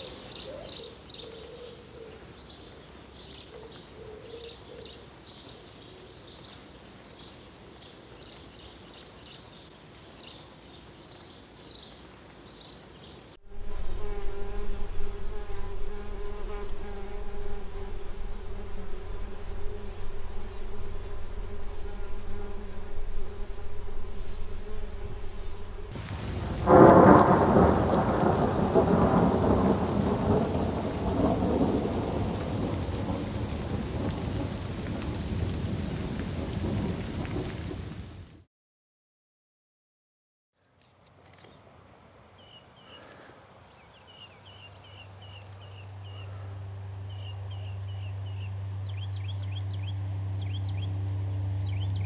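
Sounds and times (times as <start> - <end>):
thunder rumbling: 13.4 - 38.4
rain falling on water: 13.4 - 38.5
bumblebee buzzing: 13.5 - 34.9.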